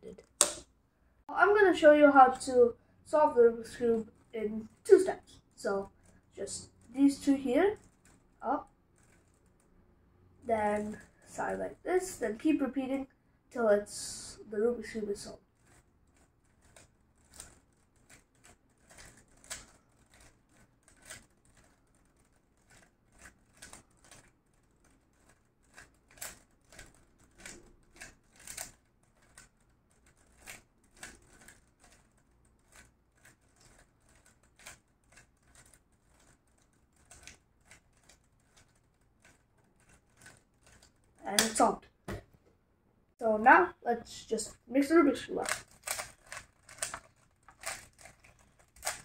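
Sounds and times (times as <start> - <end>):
puzzle cube plastic clicking: 0.1 - 0.7, 15.6 - 41.7, 45.1 - 49.0.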